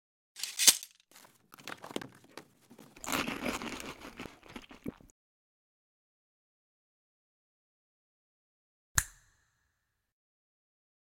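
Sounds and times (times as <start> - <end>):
crinkling and crackling: 0.4 - 5.1.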